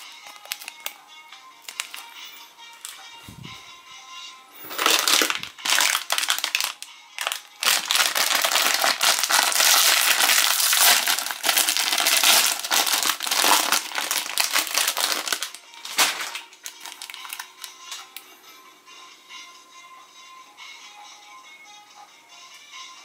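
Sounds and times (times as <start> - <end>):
plastic wrapper crinkling: 0.0 - 1.0, 1.6 - 2.2, 4.6 - 18.0.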